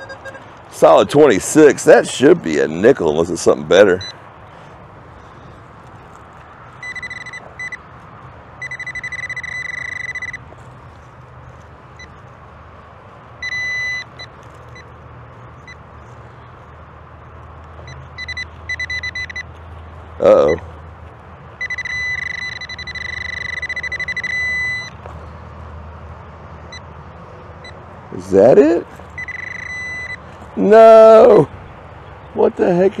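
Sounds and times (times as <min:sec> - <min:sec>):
metal detector tone: 0:00.0 - 0:00.5, 0:03.9 - 0:04.2, 0:06.8 - 0:07.8, 0:08.6 - 0:10.4, 0:13.4 - 0:14.8, 0:18.0 - 0:19.5, 0:21.6 - 0:25.0, 0:29.2 - 0:30.2.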